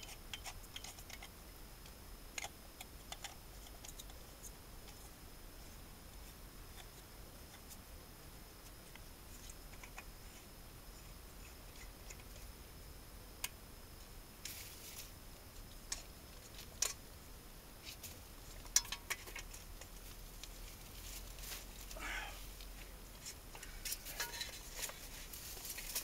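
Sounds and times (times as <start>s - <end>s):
faint clicks and scrapes: 0.0s - 7.8s, 8.6s - 12.6s, 17.8s - 26.0s
scraping rustle: 17.8s - 26.0s.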